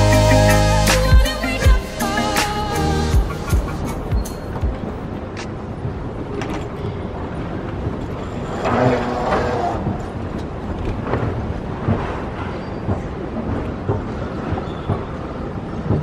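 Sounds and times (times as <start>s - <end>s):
airport terminal background noise: 3.4s - 11.5s.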